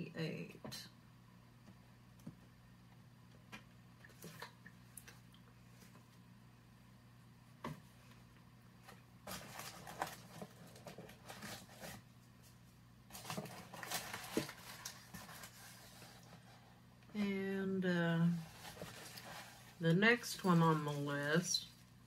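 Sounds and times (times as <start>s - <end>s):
faint steady hum: 0.0s - 22.0s
paper and plastic wrap rustling: 8.8s - 16.7s, 18.2s - 22.0s.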